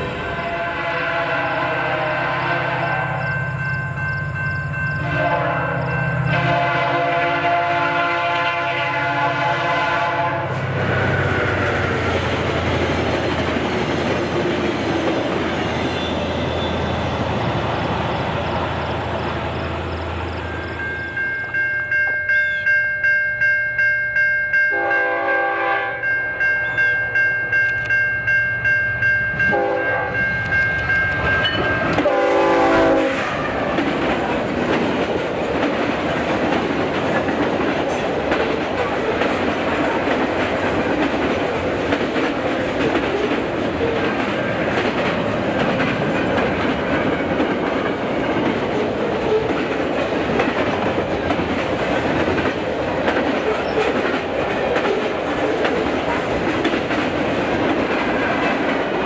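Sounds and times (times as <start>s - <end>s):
locomotive air horn: 0.0s - 3.2s, 5.0s - 11.8s, 15.9s - 17.0s, 24.7s - 26.1s, 29.5s - 30.2s, 32.0s - 33.8s
train passing with heavy rumble: 0.0s - 59.0s
bell ringing: 3.0s - 6.3s, 20.3s - 25.2s, 26.0s - 32.1s.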